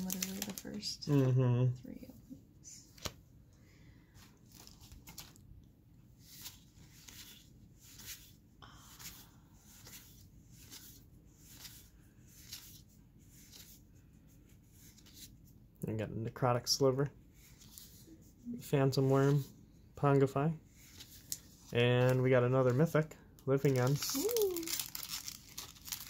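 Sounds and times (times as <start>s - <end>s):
wrapper rustling and crackling: 0.0s - 1.2s, 4.2s - 5.4s, 23.6s - 26.0s.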